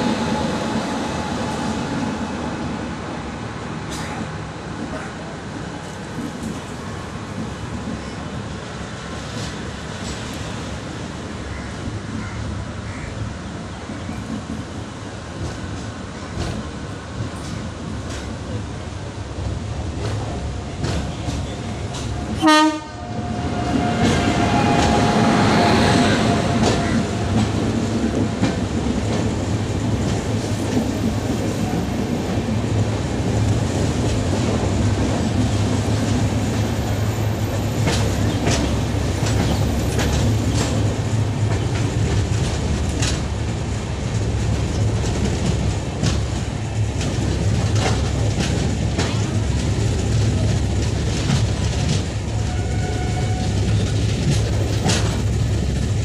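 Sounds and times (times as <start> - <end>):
trains rumbling: 0.0 - 56.0
wheels clacking over rail joints: 26.2 - 43.6, 44.2 - 56.0.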